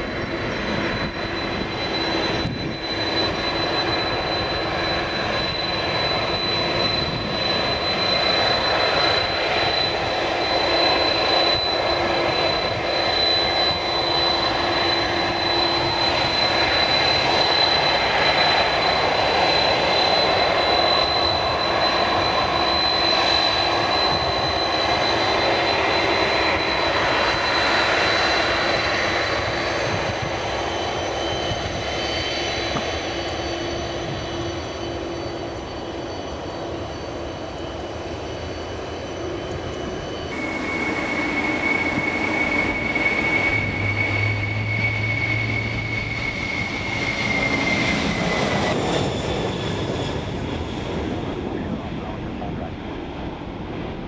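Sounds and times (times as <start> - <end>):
jet engines whining and roaring: 0.0 - 54.0.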